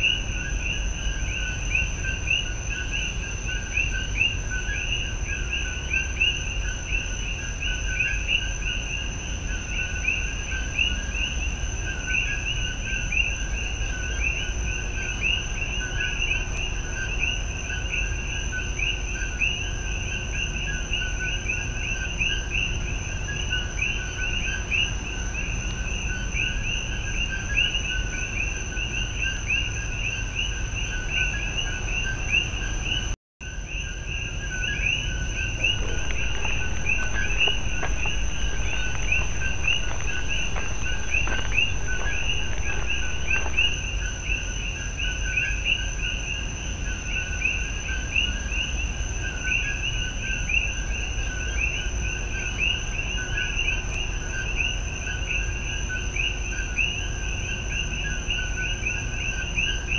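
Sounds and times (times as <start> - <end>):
high-pitched whine: 34.4 - 45.0
low rumble: 35.3 - 44.1.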